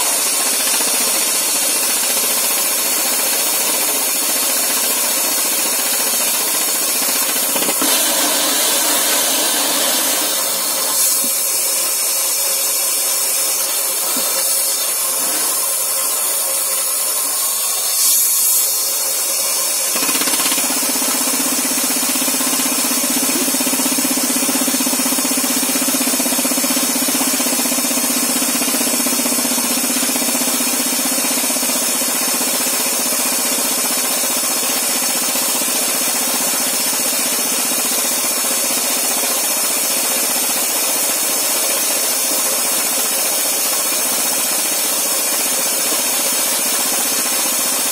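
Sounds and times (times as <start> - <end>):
rock drilling rig boring: 0.0 - 47.9.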